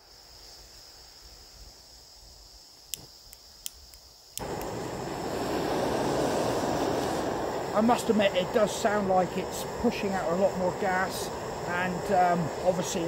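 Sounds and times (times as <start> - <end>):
stove igniter clicks: 2.9 - 4.8
gas hissing: 3.8 - 13.0
gas burner roaring: 4.4 - 13.0.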